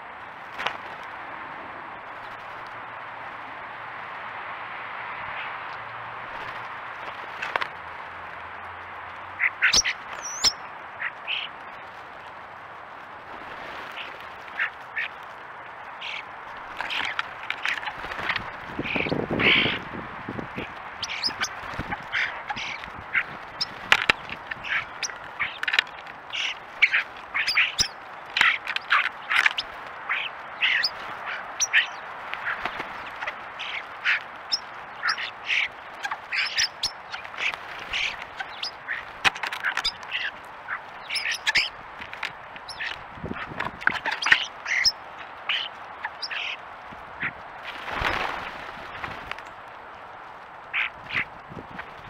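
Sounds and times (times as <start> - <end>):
starlings harsh calls and chatters: 9.2 - 12.3, 13.7 - 49.6, 50.6 - 51.9.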